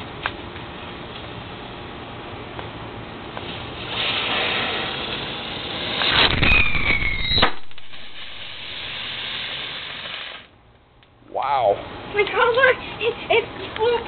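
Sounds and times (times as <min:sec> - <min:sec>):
firework fountain hissing: 0:03.1 - 0:10.5
firework pop: 0:06.0 - 0:08.6
faint falling whistle: 0:06.3 - 0:07.6.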